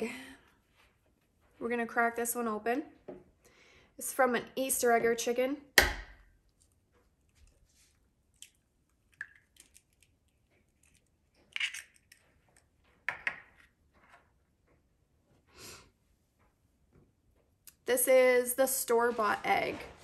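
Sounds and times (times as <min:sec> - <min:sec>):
egg shell cracking: 0:08.3 - 0:12.6
egg shell clicks: 0:08.4 - 0:12.2.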